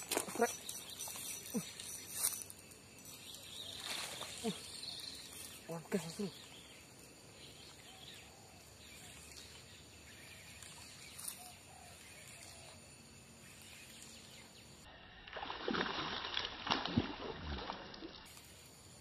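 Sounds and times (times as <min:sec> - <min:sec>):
faint outdoor background: 0:00.0 - 0:19.0
fish splashing at water surface: 0:15.3 - 0:18.3.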